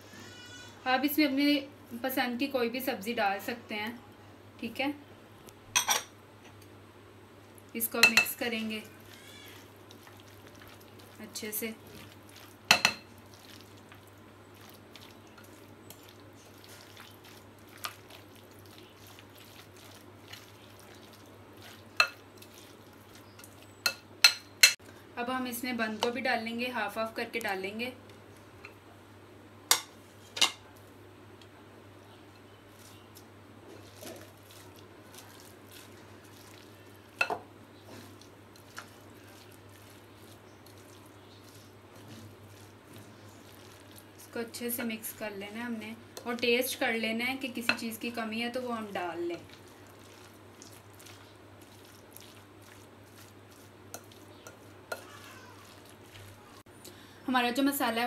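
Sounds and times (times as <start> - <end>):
soft squelching: 7.7 - 24.0, 32.6 - 45.2, 49.3 - 56.6
spoon stirring thick mixture: 7.9 - 24.7, 32.4 - 56.6.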